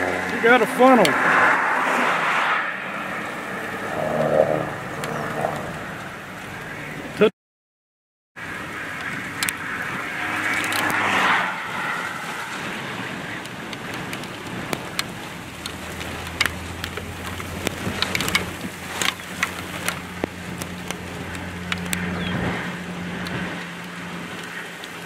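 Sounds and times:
low engine hum: 0:00.0 - 0:07.3, 0:08.4 - 0:25.0
storm wind buffeting car window: 0:02.6 - 0:07.2, 0:08.4 - 0:25.0
raindrops ticking on car: 0:11.6 - 0:25.0.

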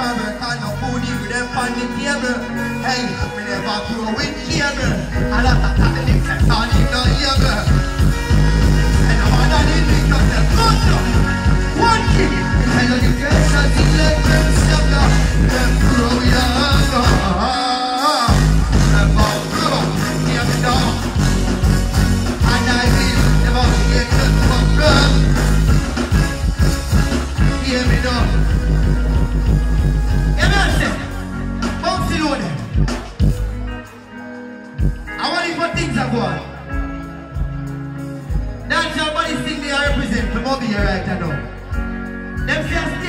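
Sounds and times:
bass-driven dancehall riddim: 0:00.0 - 0:33.8
deejay vocals: 0:00.0 - 0:43.0.

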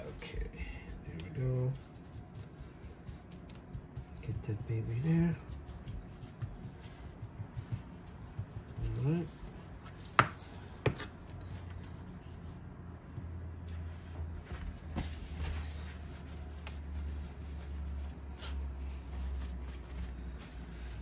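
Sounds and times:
steady low hum: 0:00.0 - 0:21.0
paper towel rustle: 0:13.8 - 0:21.0.

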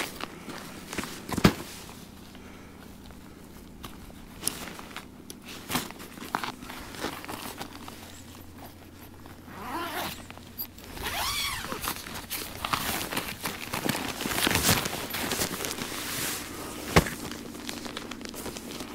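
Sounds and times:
zipper being pulled: 0:08.6 - 0:13.8.

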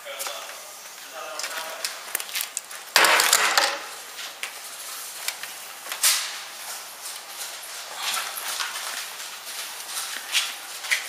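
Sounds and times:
footsteps: 0:00.0 - 0:11.0
clicks and knocks: 0:03.0 - 0:03.9.

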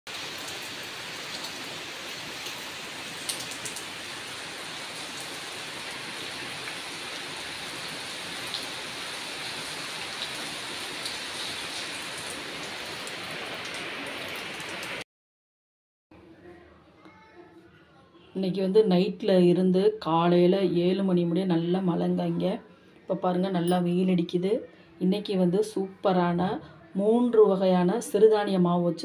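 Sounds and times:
heavy rain falling: 0:00.1 - 0:15.0.

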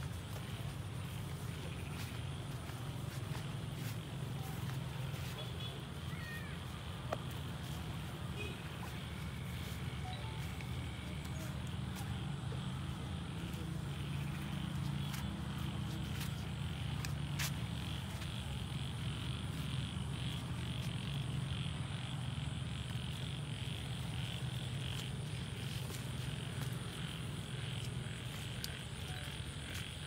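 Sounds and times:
frogs calling: 0:00.0 - 0:30.0.

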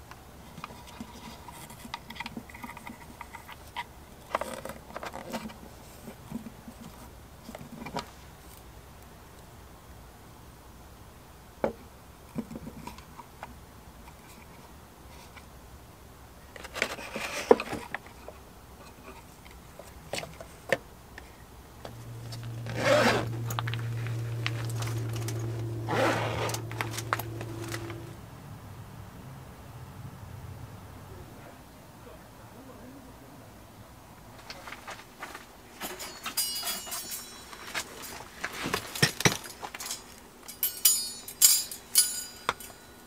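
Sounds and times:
steady low hum: 0:00.0 - 0:43.0
tent zipper pulled: 0:22.5 - 0:28.1.

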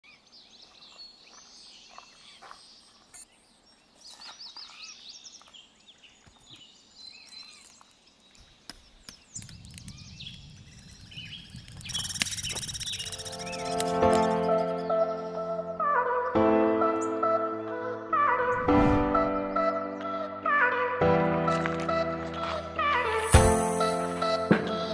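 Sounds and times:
songbirds chirping and singing: 0:00.0 - 0:20.6
wood fire crackling: 0:07.6 - 0:14.3
music: 0:13.2 - 0:24.9.

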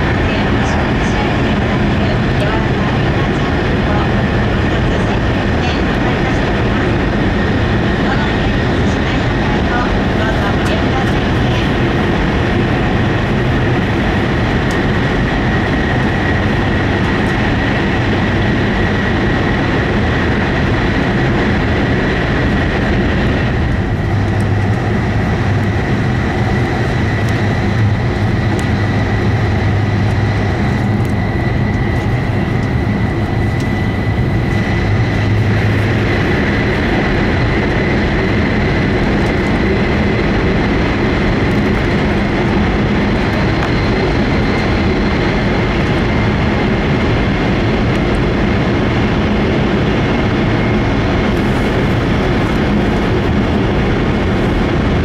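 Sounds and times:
rail and air rush: 0:00.0 - 0:55.0
deep hum: 0:11.7 - 0:55.0.

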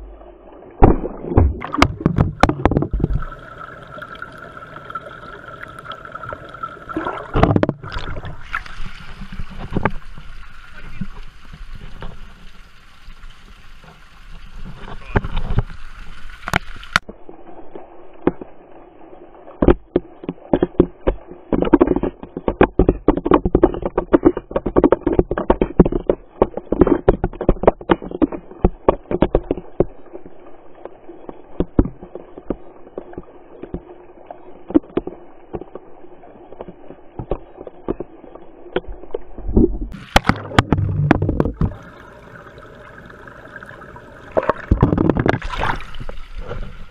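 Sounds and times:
underwater bubbles crackling: 0:00.0 - 0:46.9
fountain water splashing: 0:01.6 - 0:07.4, 0:39.9 - 0:44.8.

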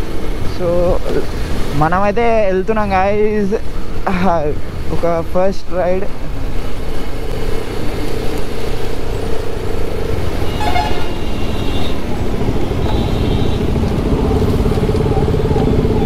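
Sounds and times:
motorcycle engine running: 0:09.8 - 0:16.0
short high horn toot: 0:10.4 - 0:12.0
vehicle horn honking: 0:10.4 - 0:13.8.

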